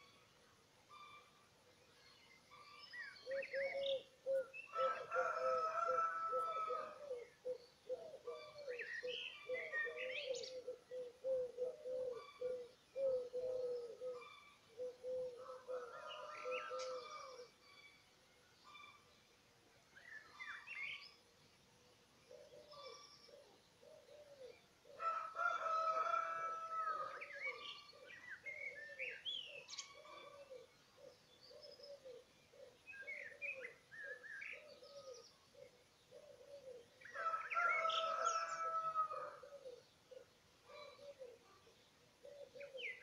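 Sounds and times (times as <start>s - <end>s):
songbird chirps and trills: 0.0s - 43.0s
rooster crowing: 4.7s - 7.1s, 25.0s - 27.3s, 37.1s - 39.6s.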